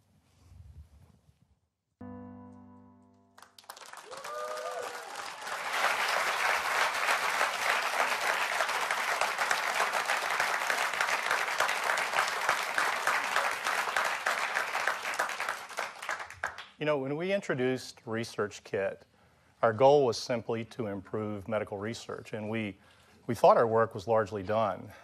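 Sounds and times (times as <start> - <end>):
audience applauding: 3.4 - 16.8.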